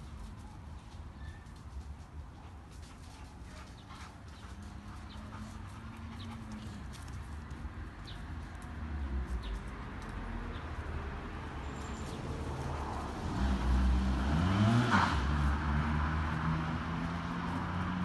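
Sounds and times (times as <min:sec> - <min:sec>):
vehicle engine passing by: 0:04.4 - 0:18.0.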